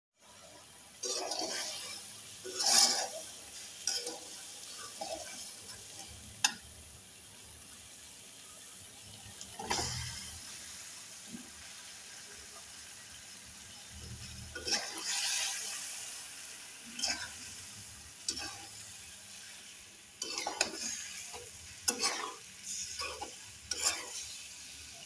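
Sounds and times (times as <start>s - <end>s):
paste sizzling in a wok: 0.2s - 25.0s
metal spatula scraping a wok: 1.0s - 6.6s, 9.5s - 10.4s, 14.1s - 16.0s, 16.9s - 17.6s, 18.2s - 19.4s, 20.2s - 24.6s.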